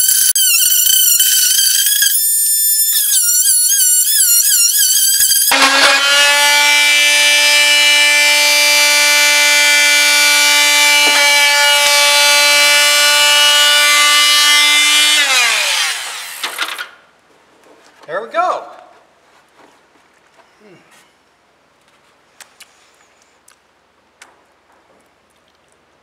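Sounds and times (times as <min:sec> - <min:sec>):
oscillating multi-tool whining: 0:00.0 - 0:16.8.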